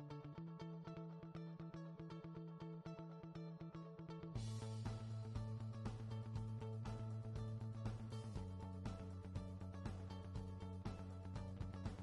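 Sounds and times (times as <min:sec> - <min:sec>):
background music with beat: 0:04.4 - 0:12.0.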